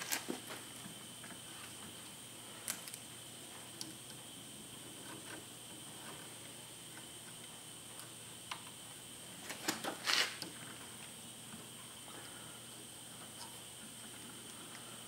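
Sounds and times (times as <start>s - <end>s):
faint high whine: 0.0s - 15.0s
brief rustle: 9.5s - 10.4s.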